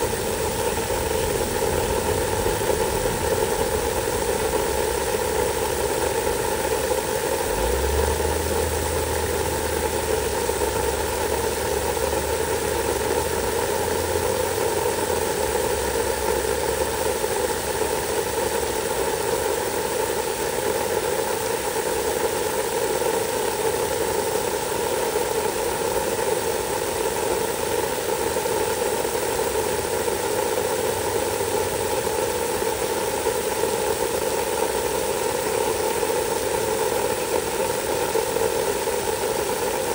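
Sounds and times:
low hum: 0.0s - 12.6s
hose spraying water on mulch: 0.0s - 39.9s
machine running noise: 0.0s - 39.9s.

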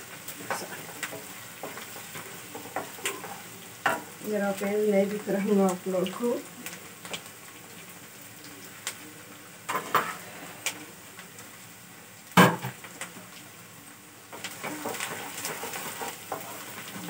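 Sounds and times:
wooden spatula stirring in pan: 0.0s - 8.0s, 14.3s - 17.0s.

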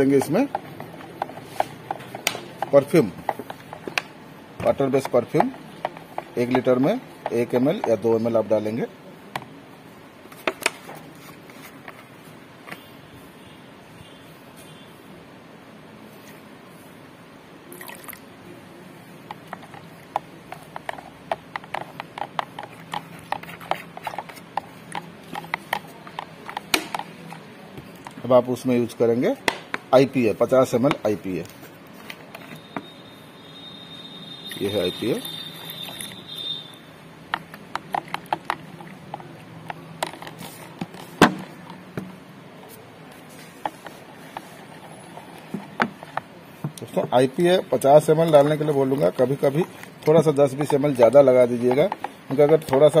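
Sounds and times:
stick knocking in plastic jug: 0.0s - 8.0s, 37.3s - 42.2s, 45.4s - 46.9s, 51.6s - 53.0s
liquid stirred in plastic jug: 0.0s - 8.2s, 19.2s - 28.6s, 34.3s - 53.0s.

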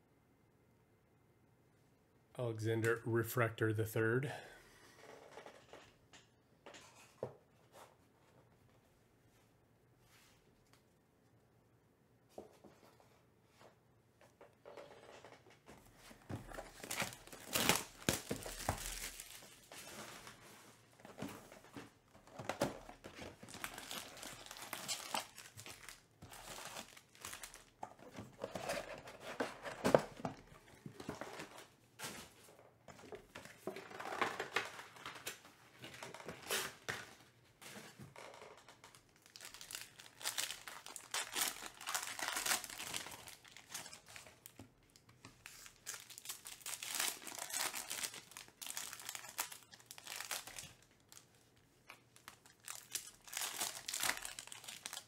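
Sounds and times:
foil packs rustling and crinkling: 16.3s - 32.4s, 38.9s - 55.0s
packaging tearing: 16.7s - 19.5s, 23.4s - 27.7s, 39.2s - 44.5s, 45.4s - 51.1s, 52.2s - 55.0s.

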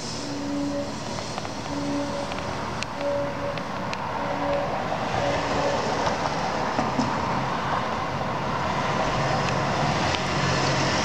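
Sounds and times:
street traffic: 0.0s - 11.0s
faint held tones: 1.6s - 5.9s.

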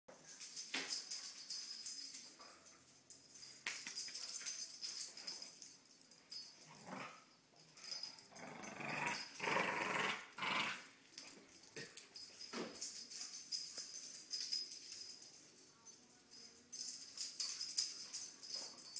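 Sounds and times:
dog growling in play: 6.7s - 7.2s, 8.3s - 10.9s.

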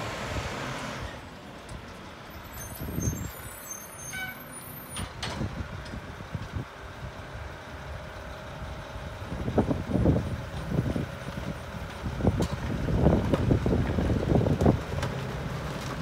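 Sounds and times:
diesel engine idling: 5.4s - 16.0s.

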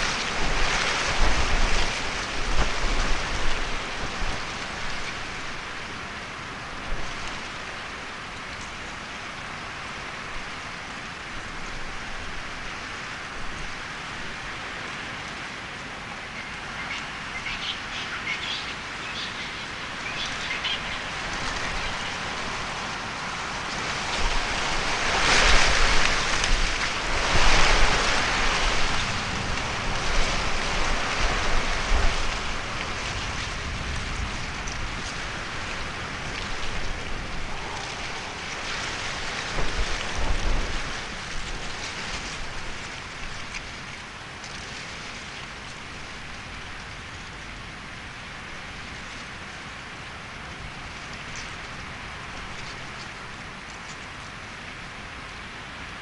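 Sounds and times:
rain falling: 0.0s - 56.0s.

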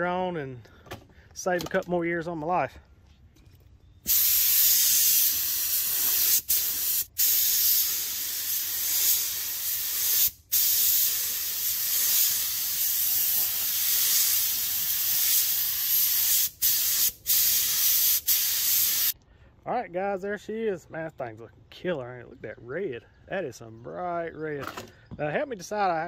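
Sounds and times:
paint spray gun hissing: 4.1s - 19.2s.

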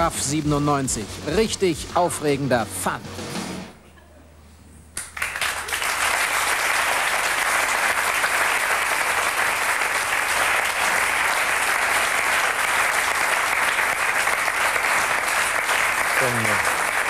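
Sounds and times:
audience applauding: 5.0s - 17.0s.

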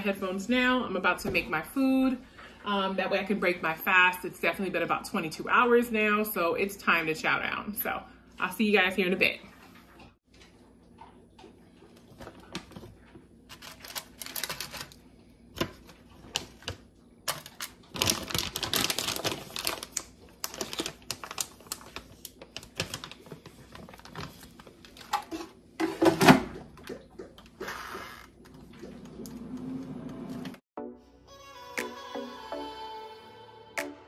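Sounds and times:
crinkly bag rustling: 12.1s - 15.0s, 15.7s - 25.4s.

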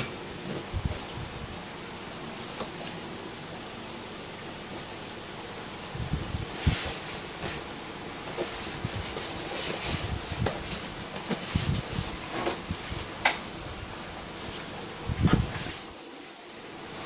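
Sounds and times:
foam scraping and rubbing: 6.4s - 7.7s, 8.3s - 13.0s, 14.5s - 16.4s.

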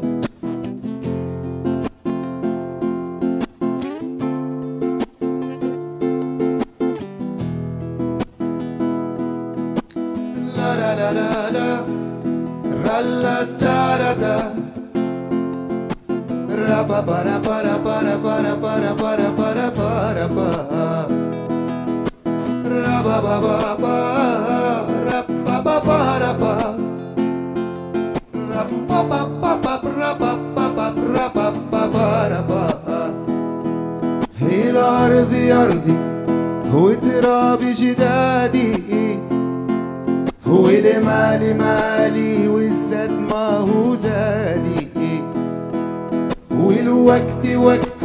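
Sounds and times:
plucked acoustic guitar: 0.0s - 48.0s
person singing: 10.2s - 15.1s, 16.3s - 21.7s, 22.4s - 27.3s, 28.2s - 33.5s, 34.2s - 39.5s, 40.3s - 45.4s, 46.5s - 48.0s.

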